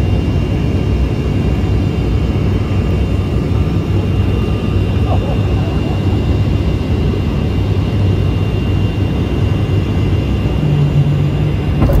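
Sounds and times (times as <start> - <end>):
airliner engines droning: 0.0 - 12.0
low hum: 3.1 - 8.6.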